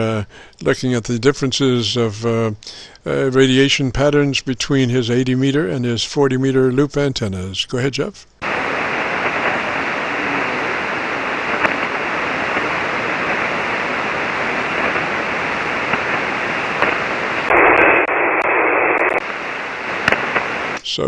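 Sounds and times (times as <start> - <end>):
radio static and band noise: 8.4 - 21.0.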